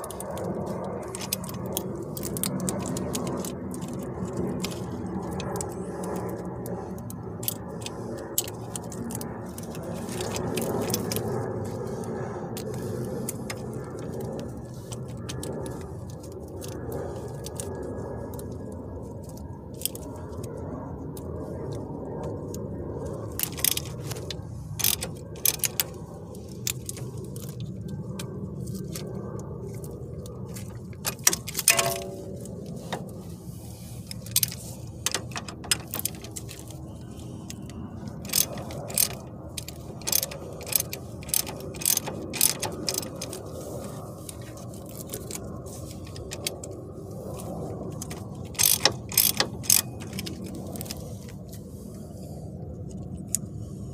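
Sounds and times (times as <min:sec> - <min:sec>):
ratchet wrench clicking: 0:00.0 - 0:11.3, 0:23.4 - 0:27.7, 0:30.6 - 0:33.0, 0:34.1 - 0:46.7, 0:47.4 - 0:51.1
steady low hum: 0:00.0 - 0:53.9
sharp metal clink: 0:31.5 - 0:32.3.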